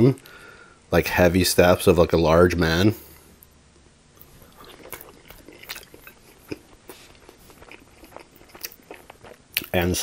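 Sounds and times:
mouth chewing clicks and smacks: 4.2s - 9.8s.

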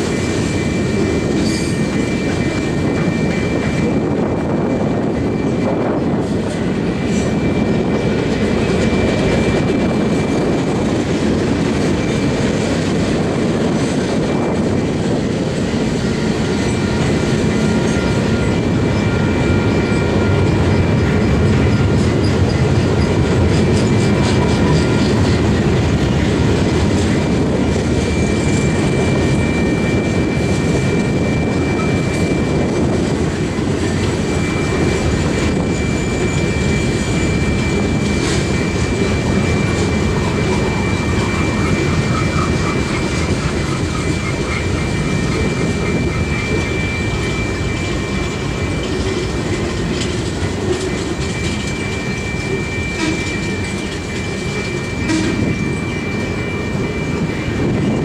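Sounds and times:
freight train wheels rumbling: 0.0s - 58.0s
thin high whine: 27.0s - 58.0s.

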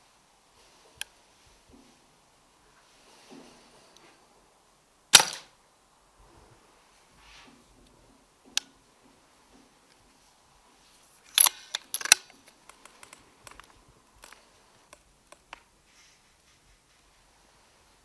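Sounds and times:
air rifle metallic clicks: 5.2s - 5.5s, 11.3s - 15.6s.

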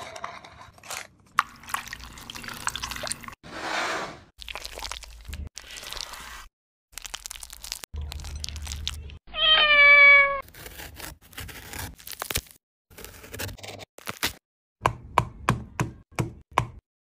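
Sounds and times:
cat meowing: 9.3s - 10.4s.

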